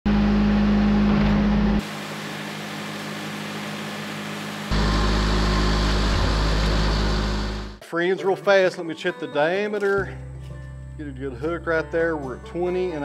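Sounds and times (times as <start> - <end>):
sawmill running hum: 0.1 - 7.8.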